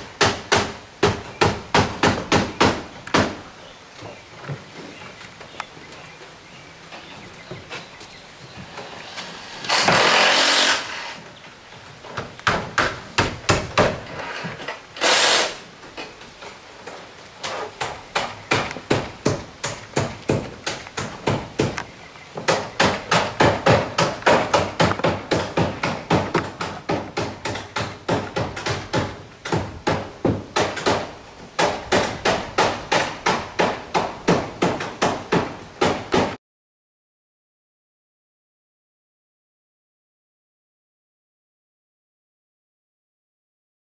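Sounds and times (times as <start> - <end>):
hammers driving nails: 0.2 - 3.4, 9.6 - 11.2, 12.2 - 14.1, 17.4 - 21.8, 22.4 - 36.4.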